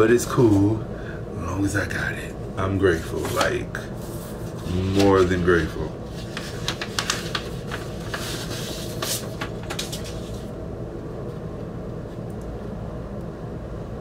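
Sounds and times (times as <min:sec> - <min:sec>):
steady low rumble: 0:00.0 - 0:14.0
vinyl record being handled: 0:03.1 - 0:10.5.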